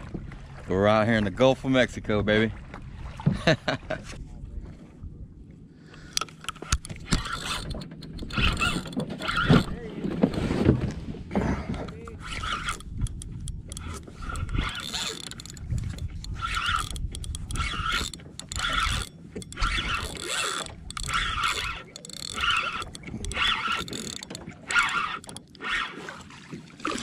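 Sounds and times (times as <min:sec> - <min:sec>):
fishing reel whirring: 0:06.2 - 0:09.8, 0:12.0 - 0:26.1.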